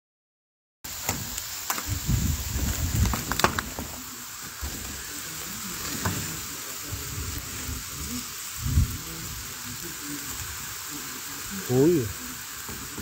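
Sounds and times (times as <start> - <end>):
ash pattering on metal sheeting: 1.0 - 7.7.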